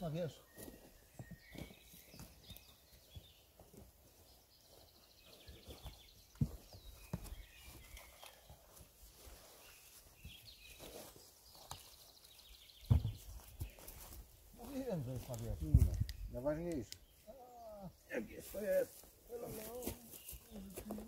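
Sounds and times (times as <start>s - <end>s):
rustling and soft knocks: 12.8s - 14.1s.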